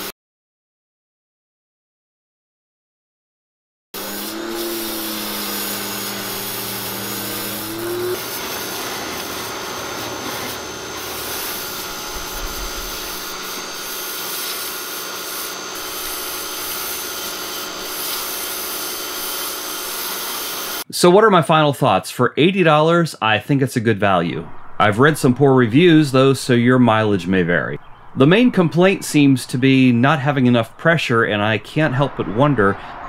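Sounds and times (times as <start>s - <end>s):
pressure washer spraying: 4.0s - 20.8s.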